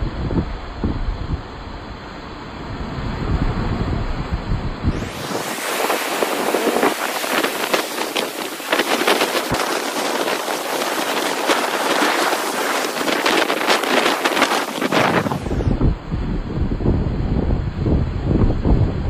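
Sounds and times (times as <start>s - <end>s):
wind rumble on microphone: 0.0s - 19.0s
surf breaking over rocks: 2.0s - 16.8s.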